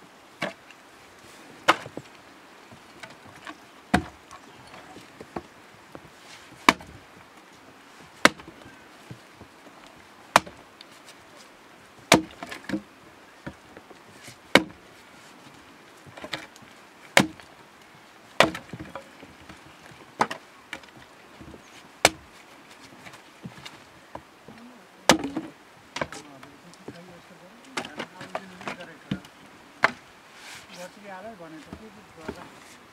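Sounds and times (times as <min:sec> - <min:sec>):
axe chopping wood: 0:01.7 - 0:02.0, 0:03.9 - 0:04.2, 0:06.6 - 0:06.9, 0:08.2 - 0:08.5, 0:10.3 - 0:10.6, 0:12.1 - 0:12.8, 0:14.5 - 0:14.8, 0:17.2 - 0:17.4, 0:18.4 - 0:19.1, 0:22.0 - 0:22.2, 0:25.1 - 0:26.2, 0:29.8 - 0:30.0.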